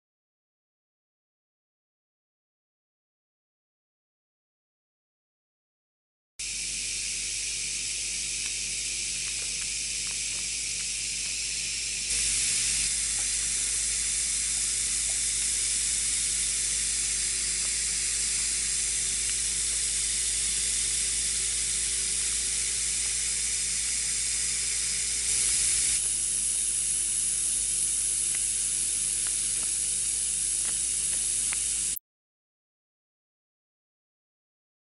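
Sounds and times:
electrical discharge sizzling hiss: 0:06.4 - 0:32.0
low electrical hum: 0:06.4 - 0:32.0.

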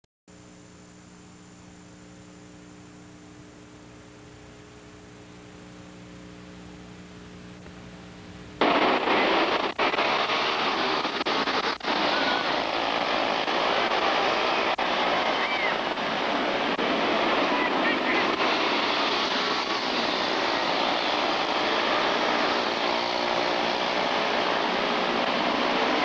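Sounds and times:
electrical mains hum: 0:00.3 - 0:10.0
race car engines: 0:08.6 - 0:26.0.

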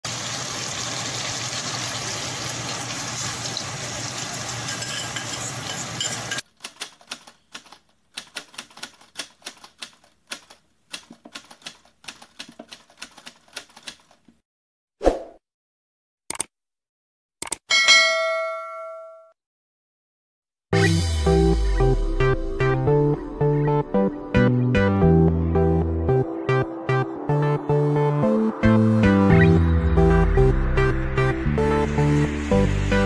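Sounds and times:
food sizzling in a pot: 0:00.0 - 0:06.4
typewriter clicks: 0:06.5 - 0:14.3.

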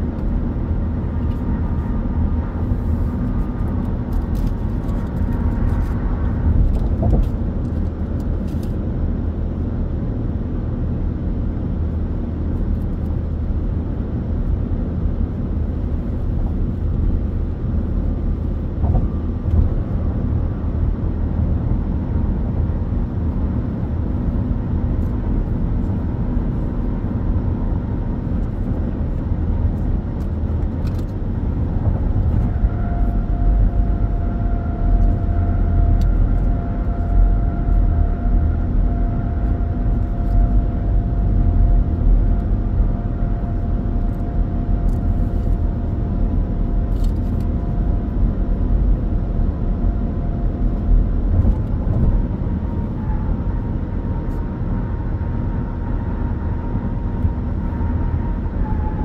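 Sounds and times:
car engine hum: 0:00.0 - 0:59.0
faint steady whine: 0:12.6 - 0:59.0.

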